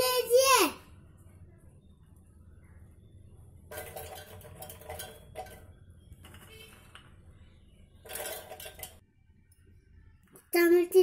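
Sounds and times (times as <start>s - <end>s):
peas clattering in steel jar: 8.0s - 9.0s.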